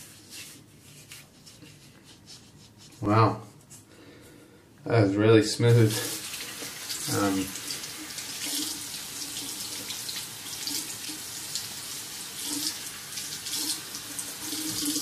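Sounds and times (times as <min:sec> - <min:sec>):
tap water splashing into sink: 0:06.2 - 0:15.0.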